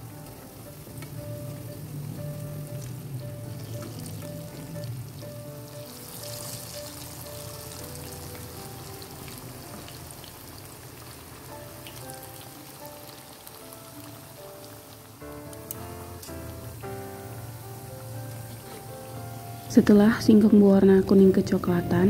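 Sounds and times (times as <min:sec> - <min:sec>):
food deep-frying in oil: 0:00.0 - 0:22.0
soft background music: 0:00.0 - 0:22.0.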